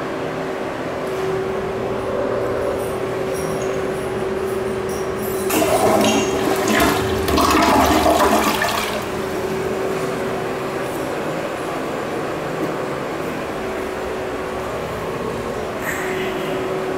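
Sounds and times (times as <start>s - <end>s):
toilet flushing water rush: 5.5s - 9.8s.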